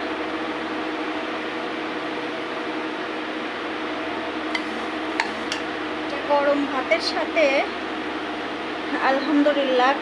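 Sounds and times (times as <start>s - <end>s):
electric fan humming: 0.0s - 10.0s.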